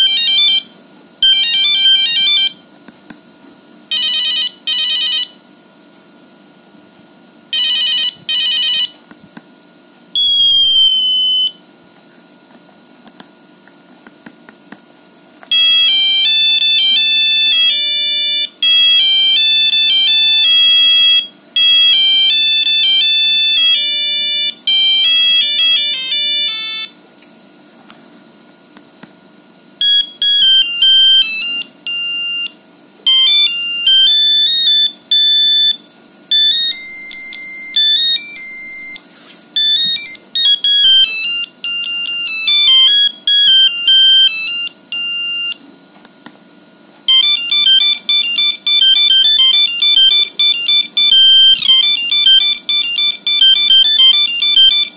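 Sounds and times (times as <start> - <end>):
monophonic phone ringtone beeps: 0.0 - 0.6, 1.2 - 2.6, 7.5 - 9.0, 10.2 - 11.6, 15.5 - 26.9, 29.8 - 45.7, 47.1 - 54.9.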